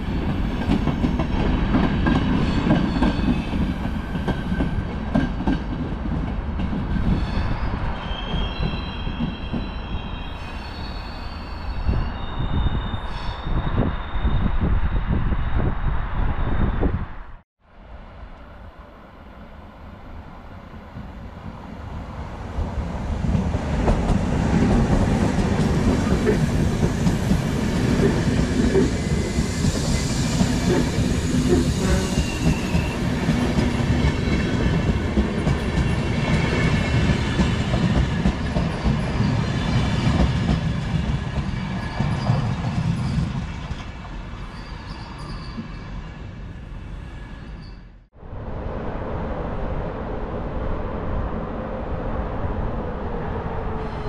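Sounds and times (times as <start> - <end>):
train wheels clattering on rails: 0.0 - 7.6, 23.2 - 45.8
faint wheel squeal: 7.0 - 15.6.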